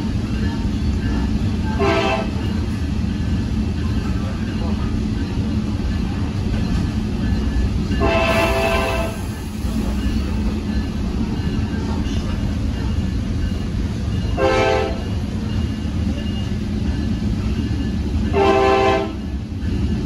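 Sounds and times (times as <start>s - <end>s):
rumble of moving train: 0.0s - 20.0s
train horn blasts: 1.7s - 2.5s, 8.0s - 9.3s, 14.4s - 15.1s, 18.3s - 19.3s.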